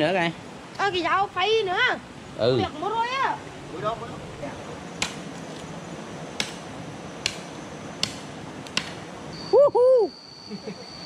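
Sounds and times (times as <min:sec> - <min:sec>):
high insect trill: 0:00.8 - 0:11.0
knife chopping firewood: 0:05.0 - 0:05.3, 0:06.4 - 0:09.0.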